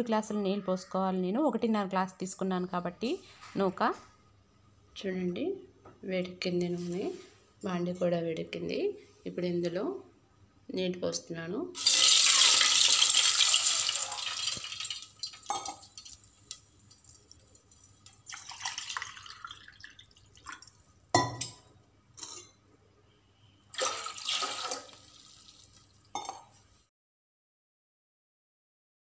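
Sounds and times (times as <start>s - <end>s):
water splashing into hot oil: 11.8s - 20.8s, 23.7s - 26.0s.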